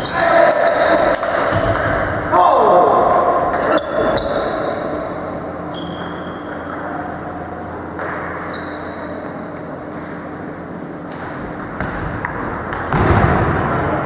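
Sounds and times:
table tennis ball bouncing: 5.9s - 7.1s, 11.2s - 14.0s.

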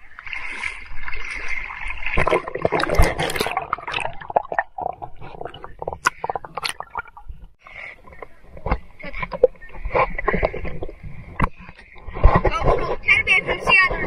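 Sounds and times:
water sloshing and gurgling: 0.0s - 14.0s.

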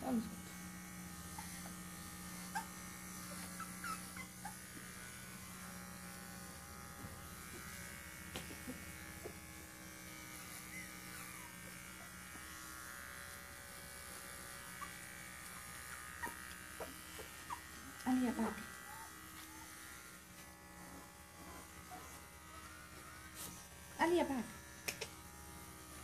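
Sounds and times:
electric trimmer buzzing: 0.0s - 26.0s
puppy squeaking: 3.5s - 4.6s, 16.2s - 17.8s.

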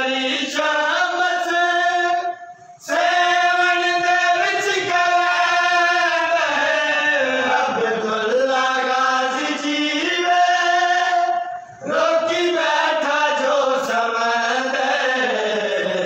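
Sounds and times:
male voices chanting a lament: 0.0s - 16.0s.

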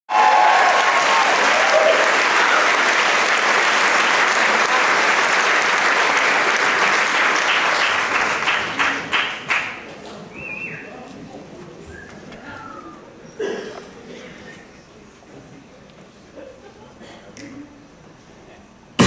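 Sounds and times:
voices cheering: 0.1s - 2.9s
audience applauding: 0.1s - 9.8s.

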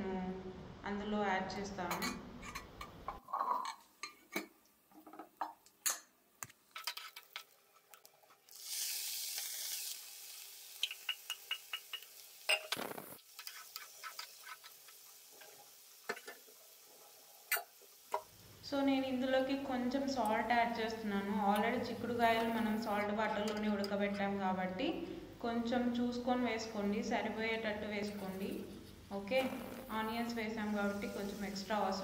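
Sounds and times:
spatula stirring pan: 6.4s - 8.7s, 10.6s - 18.4s
beans sizzling in hot pan: 6.9s - 18.6s, 29.5s - 32.0s.

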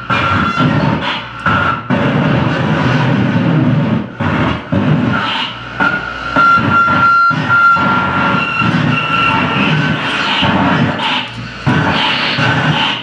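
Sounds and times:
distorted harsh noise music: 0.0s - 13.0s
thin high whistle: 6.4s - 9.8s.

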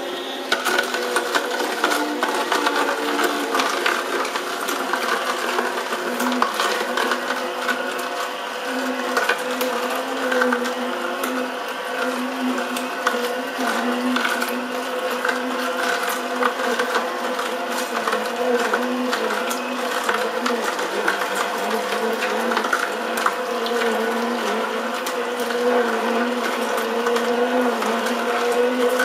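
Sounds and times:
juicer motor hum: 0.0s - 29.0s
carrots crunching and cracking: 0.5s - 29.0s.

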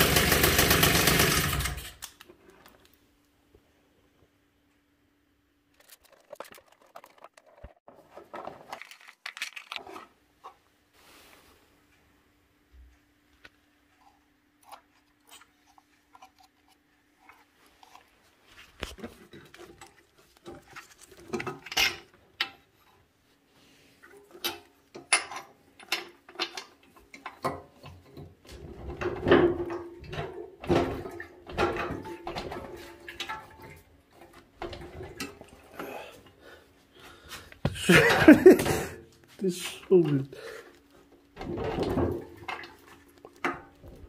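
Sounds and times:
hands handling parts clicking: 8.3s - 10.1s.

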